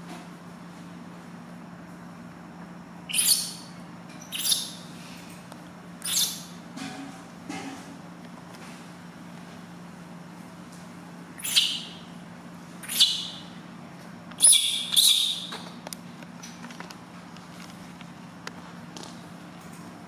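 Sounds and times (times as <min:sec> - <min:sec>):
baby monkey crying: 0:03.1 - 0:03.6, 0:04.3 - 0:04.8, 0:06.0 - 0:06.5, 0:11.4 - 0:12.0, 0:12.8 - 0:13.5, 0:14.4 - 0:15.5.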